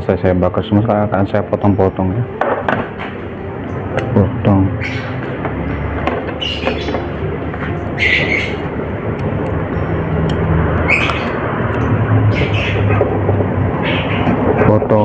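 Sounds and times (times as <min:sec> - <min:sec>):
low hum: 0:03.2 - 0:15.0.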